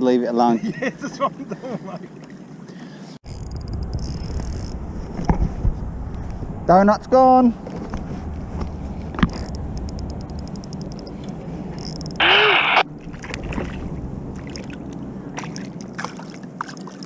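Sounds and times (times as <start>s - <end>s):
fishing reel ticking rapidly: 3.3s - 4.7s, 9.4s - 11.1s
fish splashing: 10.5s - 17.0s.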